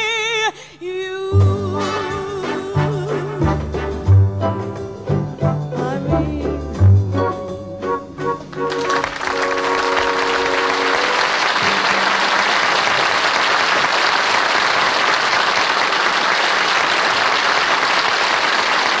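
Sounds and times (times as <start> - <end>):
audience applauding: 8.5 - 19.0.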